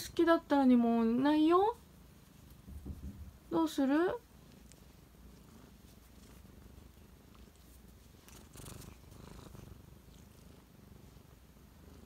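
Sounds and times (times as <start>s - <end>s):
kitten purring: 0.0s - 12.0s
rustling: 1.5s - 3.6s, 4.2s - 12.0s.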